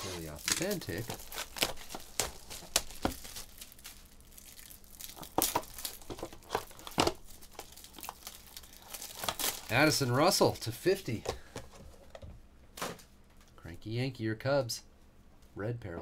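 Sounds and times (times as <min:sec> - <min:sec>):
plastic shrink wrap tearing: 0:00.0 - 0:10.4.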